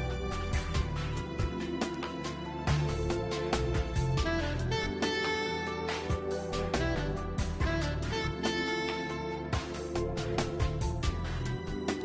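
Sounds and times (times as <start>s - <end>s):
instrumental music with beat: 0.0s - 12.0s.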